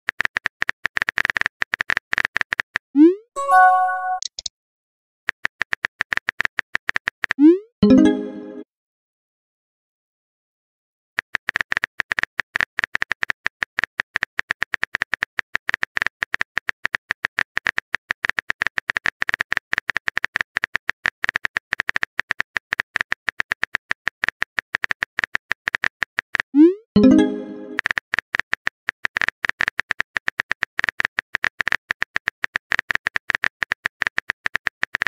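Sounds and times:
rising message sent sound effect: 3.0s - 4.3s, 27.0s - 27.8s
keyboard click sound effects: 3.0s - 4.5s, 7.4s - 8.6s, 26.6s - 27.9s.

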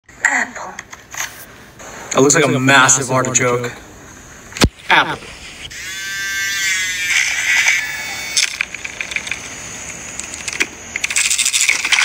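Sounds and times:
milk frother motor whine: 5.7s - 8.6s.

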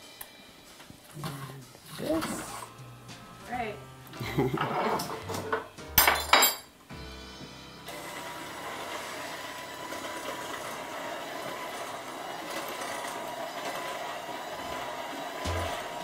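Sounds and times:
electric mixer whirring: 7.9s - 16.0s.

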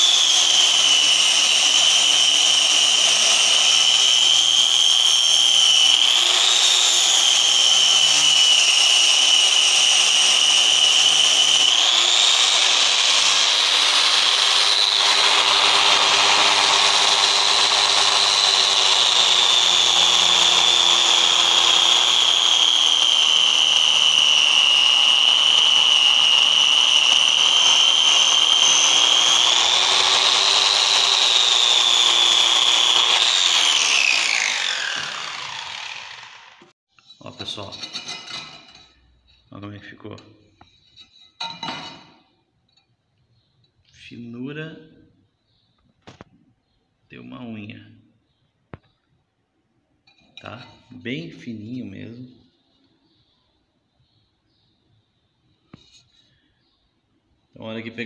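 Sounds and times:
angle grinder sanding tile: 0.0s - 36.7s.

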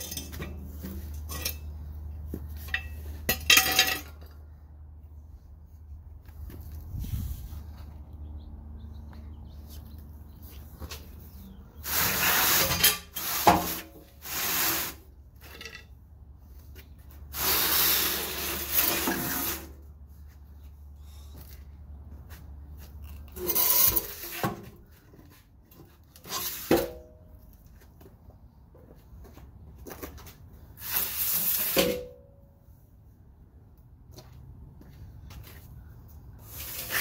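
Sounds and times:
metal pipe scraping on concrete: 0.0s - 4.3s, 11.8s - 16.0s, 17.3s - 19.9s, 23.0s - 25.0s, 25.7s - 27.2s, 30.8s - 32.2s, 36.5s - 37.0s.

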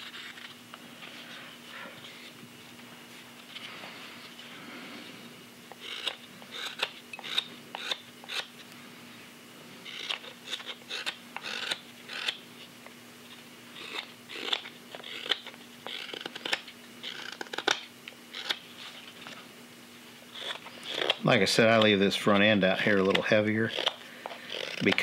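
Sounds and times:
knife shaving wood: 0.0s - 0.6s, 5.8s - 8.5s, 9.8s - 12.4s, 13.7s - 19.4s, 20.3s - 25.0s
faint steady hum: 0.0s - 25.0s.

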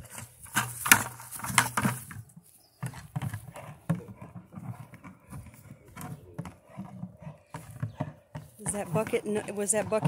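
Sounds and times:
dog breathing: 3.2s - 9.9s.

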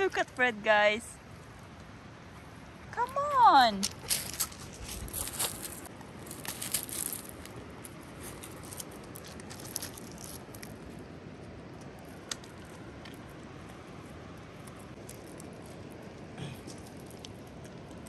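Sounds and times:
pebbles clattering and crunching: 3.9s - 10.9s.

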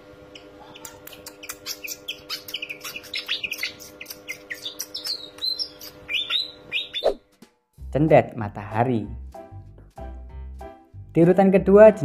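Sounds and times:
bird singing high sharp notes: 0.4s - 7.2s.

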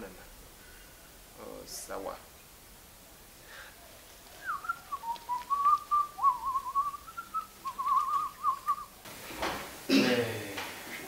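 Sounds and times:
man whistling a tune: 4.4s - 8.9s.

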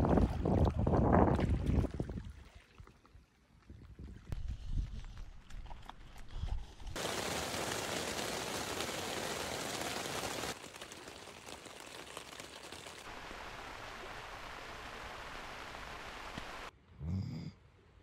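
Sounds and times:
rain falling on a tent: 7.0s - 16.7s.

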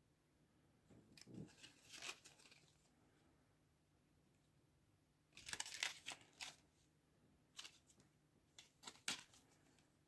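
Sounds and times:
plastic packaging crinkling: 1.4s - 2.7s, 5.4s - 6.6s.

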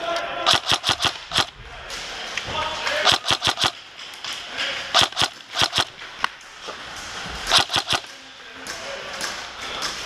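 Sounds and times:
airsoft guns firing: 0.5s - 1.6s, 3.0s - 4.0s, 4.9s - 6.0s, 7.5s - 8.2s.

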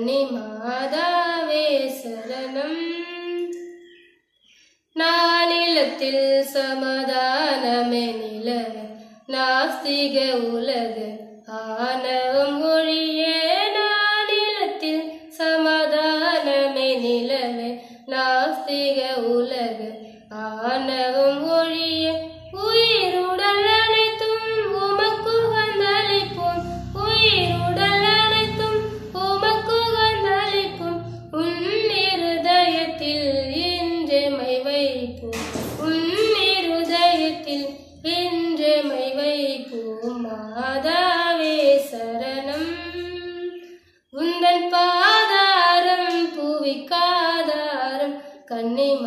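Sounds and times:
woman singing solo: 19.5s - 43.6s.

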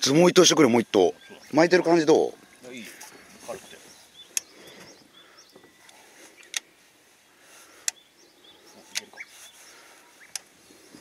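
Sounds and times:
faint bird chirps: 0.7s - 11.0s
sharp clicks: 4.3s - 4.5s.

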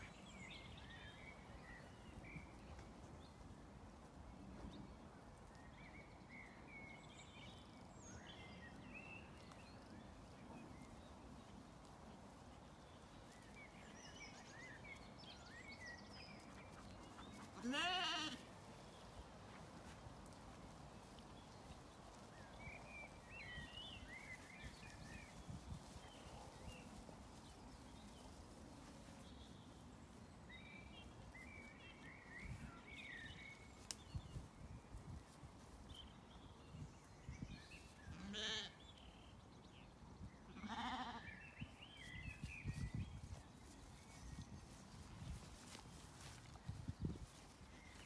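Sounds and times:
sheep bleating: 17.6s - 18.5s, 38.2s - 38.7s, 40.6s - 41.3s.

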